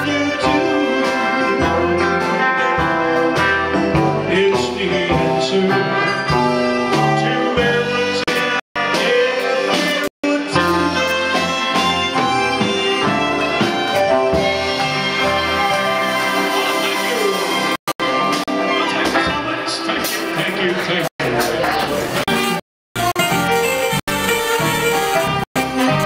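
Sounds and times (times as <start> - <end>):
person singing: 0.0 - 3.5, 4.2 - 13.2
saxophone: 0.0 - 3.7, 22.2 - 26.0
trumpet: 0.0 - 3.9, 5.4 - 19.5, 22.1 - 26.0
bass: 0.0 - 26.0
drums: 0.0 - 26.0
electric guitar: 0.0 - 26.0.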